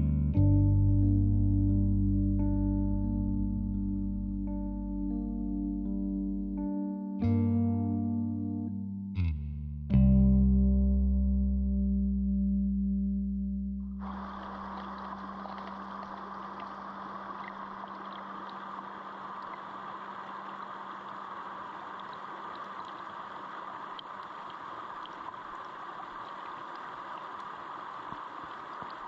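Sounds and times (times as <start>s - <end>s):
small water splashes: 14.0s - 29.0s.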